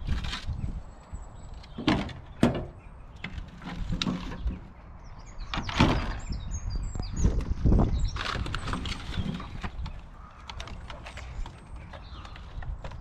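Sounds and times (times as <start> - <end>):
birds chirping: 0.4 - 13.0
rubbish knocking and clattering: 1.7 - 4.7.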